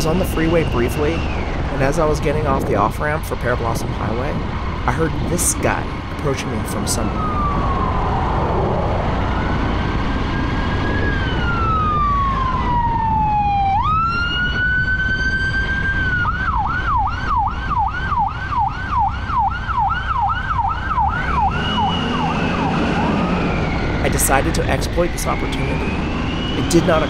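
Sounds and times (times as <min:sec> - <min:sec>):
road and wind noise: 0:00.0 - 0:27.0
police siren wailing and yelping: 0:07.0 - 0:27.0.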